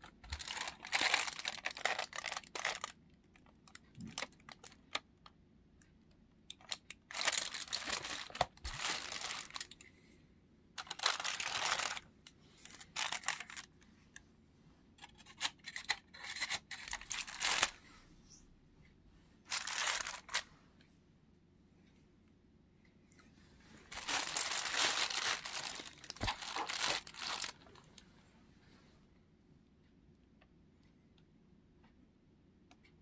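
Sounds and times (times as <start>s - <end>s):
small clicks and handling noises: 0.0s - 10.1s, 10.8s - 14.3s, 15.0s - 17.8s
aluminium foil crinkling: 0.3s - 5.0s, 6.6s - 9.8s, 10.8s - 12.0s, 12.6s - 13.7s, 15.2s - 17.8s, 19.5s - 20.4s, 23.9s - 27.7s.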